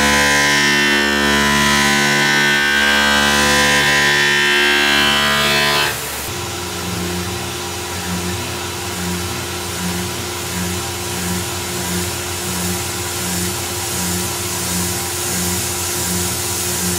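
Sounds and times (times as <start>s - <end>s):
distorted electric guitar music: 0.0s - 6.3s
milling machine cutting metal: 0.0s - 16.9s.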